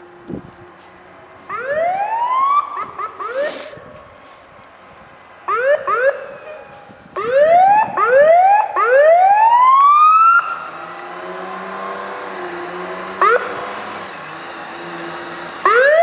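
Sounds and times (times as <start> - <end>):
electronic siren whooping: 5.5 - 16.0.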